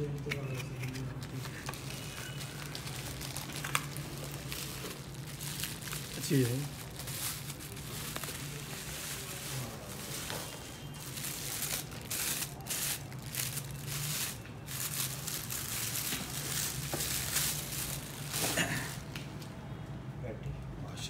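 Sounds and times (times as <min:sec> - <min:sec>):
bubble wrap and plastic bag crinkling: 0:00.0 - 0:19.3.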